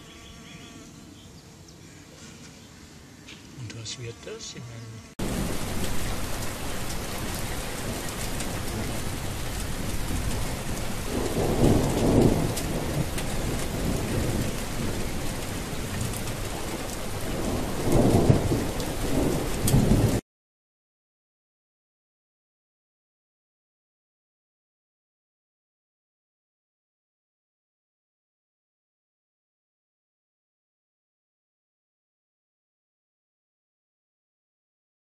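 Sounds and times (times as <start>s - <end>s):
heavy rain: 5.2s - 20.2s
thunder rolling: 5.2s - 20.2s.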